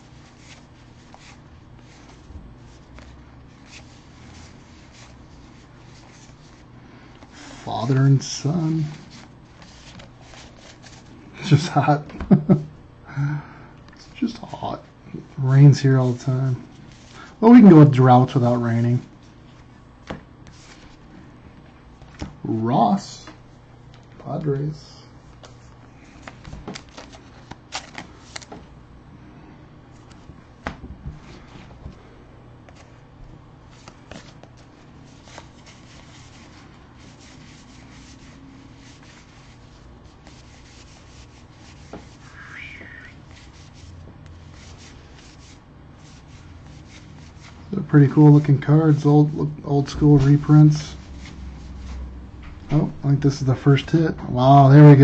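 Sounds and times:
trading cards sliding and flicking: 8.8s - 11.1s, 25.3s - 28.7s.

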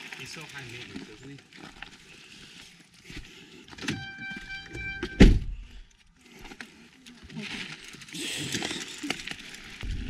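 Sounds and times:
door-open warning chime: 3.8s - 5.4s
car door slamming: 4.9s - 5.5s.

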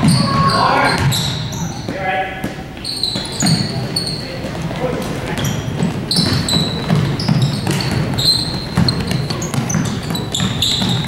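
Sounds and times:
sneakers squeaking: 0.0s - 11.0s
basketball dribbling on hardwood: 5.4s - 11.0s.

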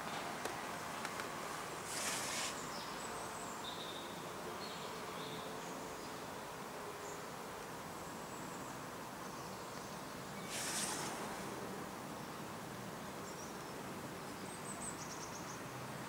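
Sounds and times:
faint steady hiss: 0.0s - 16.0s.

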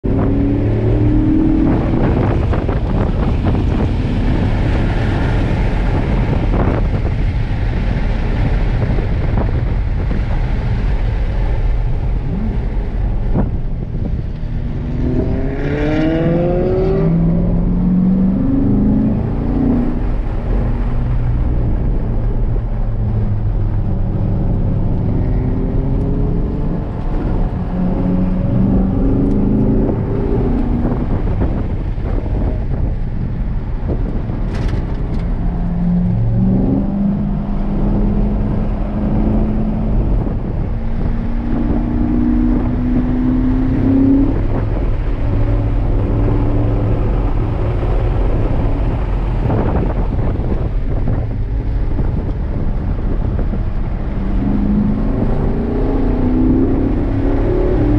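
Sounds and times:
car engine revving: 0.0s - 57.9s
road and wind noise: 0.0s - 57.9s.

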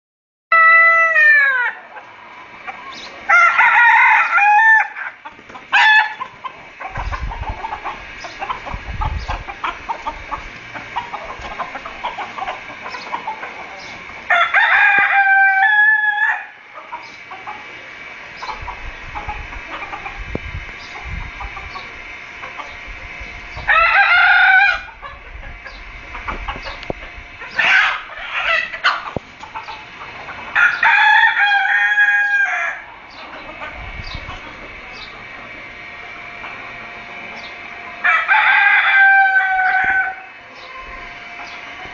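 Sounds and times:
chickens calling: 0.5s - 41.9s
chickens clucking: 0.6s - 41.9s
low rumbling noise: 6.3s - 14.3s, 15.5s - 30.6s.

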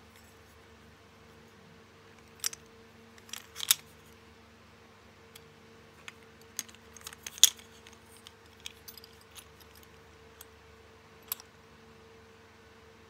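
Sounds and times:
faint steady hum: 0.0s - 13.0s
plastic padlocks clicking: 3.2s - 3.9s.

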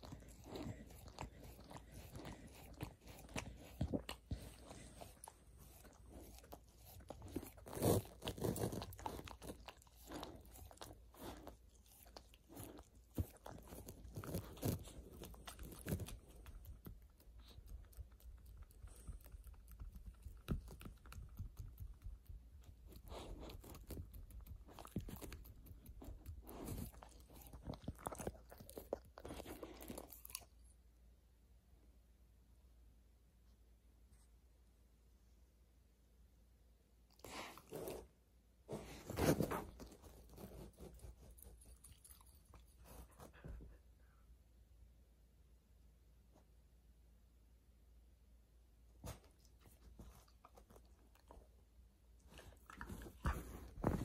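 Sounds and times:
dog chewing with crunches: 0.0s - 30.7s, 38.8s - 43.6s, 52.2s - 54.0s.

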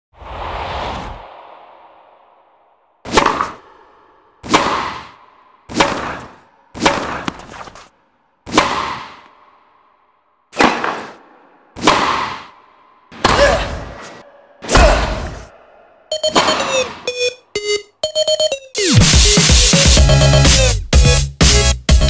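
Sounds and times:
tennis ball struck with racket: 3.0s - 3.6s, 4.4s - 7.8s, 8.5s - 9.3s, 11.8s - 12.5s.

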